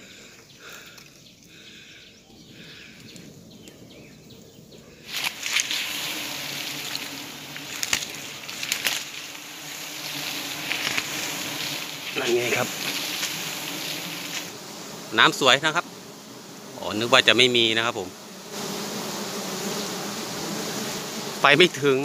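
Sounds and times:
bee colony buzzing: 0.0s - 22.0s
faint outdoor background: 0.0s - 22.0s.

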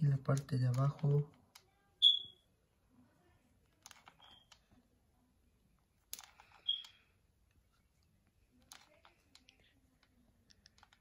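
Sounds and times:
glue gun clicks and rustles: 3.6s - 4.7s, 6.0s - 6.9s, 8.5s - 11.0s.

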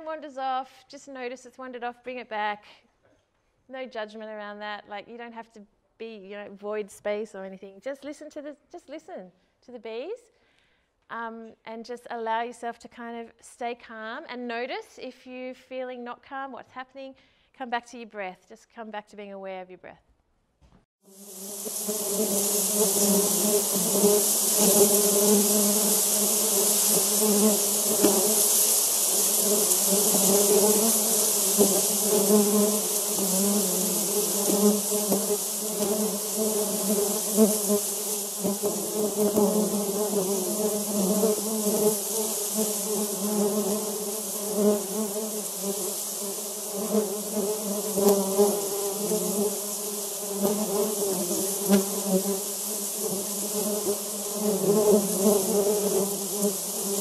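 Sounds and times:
honey bees buzzing: 21.1s - 57.0s.

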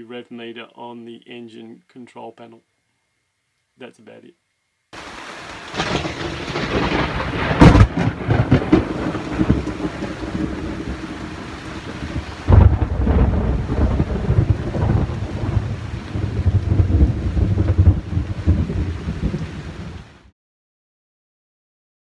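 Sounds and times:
heavy rain: 5.0s - 20.3s
thunder clap and rumble: 5.7s - 20.1s.

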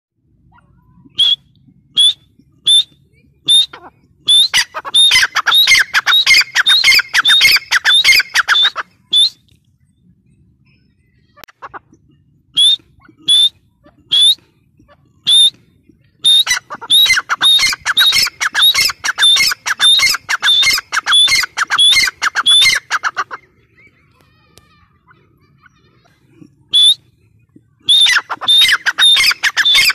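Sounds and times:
francolin calling: 16.3s - 23.1s, 27.9s - 29.9s.

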